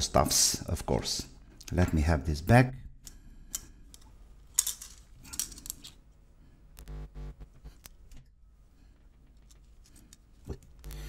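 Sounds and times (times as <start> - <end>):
small metal parts clattering: 4.5 - 6.0.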